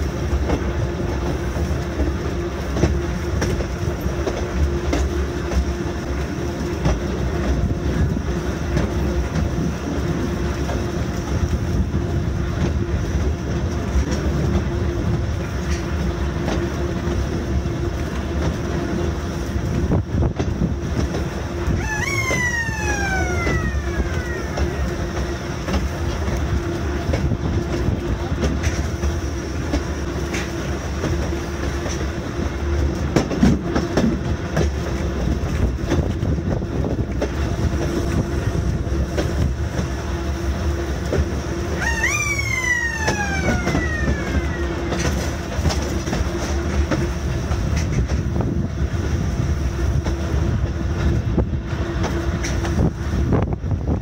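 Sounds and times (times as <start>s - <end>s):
wheels clacking over rail joints: 0.0s - 54.0s
wheels rumbling on rail: 0.0s - 54.0s
wind on microphone: 7.4s - 32.6s, 34.0s - 40.0s, 41.8s - 54.0s
falling whine: 21.6s - 25.7s, 41.7s - 45.4s.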